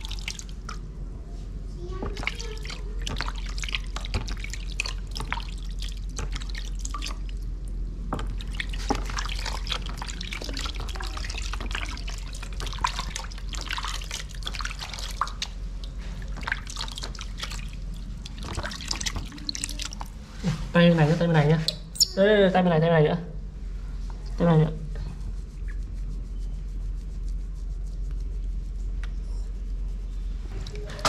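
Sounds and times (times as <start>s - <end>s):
water splashing in washbasin: 0.0s - 0.9s, 1.9s - 21.3s.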